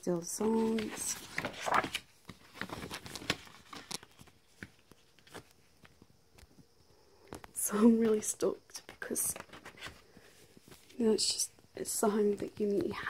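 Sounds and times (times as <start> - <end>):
paper and card rustling: 0.2 - 6.0, 8.8 - 11.0.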